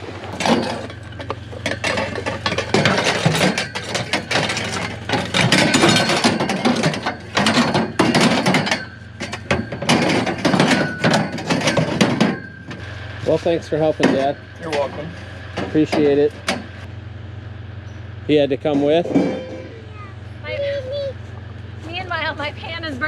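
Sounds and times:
metal tubing clanking: 0.2s - 16.9s, 18.5s - 19.8s.

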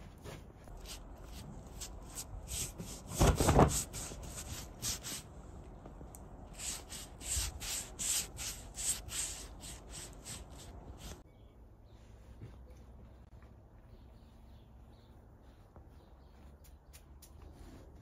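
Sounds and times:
pastry brush swishing over dough: 6.5s - 11.2s.

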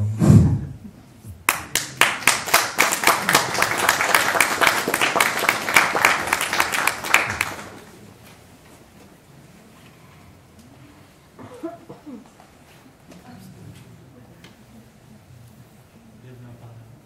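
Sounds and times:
audience clapping: 1.4s - 8.1s.

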